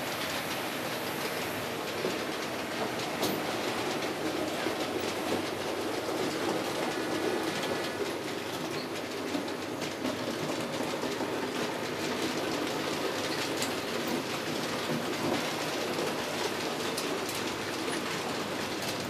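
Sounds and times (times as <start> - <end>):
model train wheels rattling on rails: 0.0 - 19.0.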